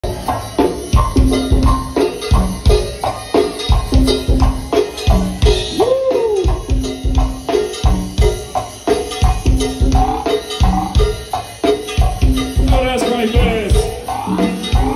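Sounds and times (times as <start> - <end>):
go-go band playing: 0.0 - 14.9.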